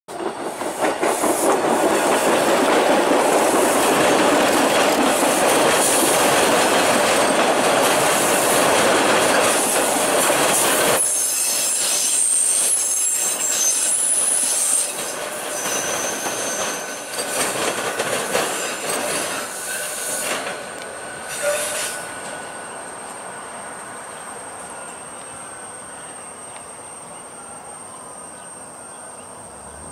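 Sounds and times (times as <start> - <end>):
subway train wheel-on-rail noise: 0.1 - 29.9
high-pitched wheel squeals: 10.9 - 17.4, 18.5 - 20.4, 21.1 - 22.8.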